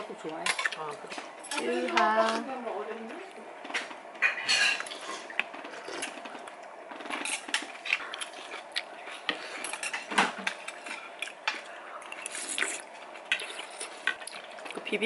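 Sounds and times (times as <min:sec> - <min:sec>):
cutlery clinking against bowls: 0:09.3 - 0:10.9.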